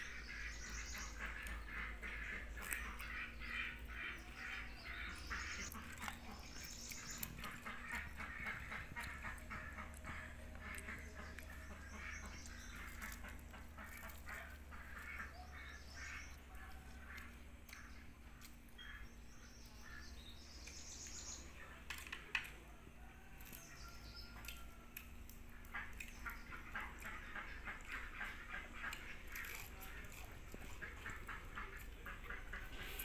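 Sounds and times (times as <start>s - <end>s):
ducks quacking: 0.0s - 20.3s, 25.5s - 33.0s
chattering calls: 0.0s - 22.2s.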